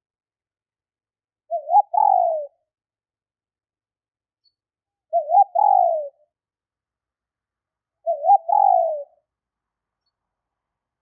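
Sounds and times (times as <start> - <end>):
dove cooing: 1.5 - 2.6, 5.1 - 6.2, 8.0 - 9.2.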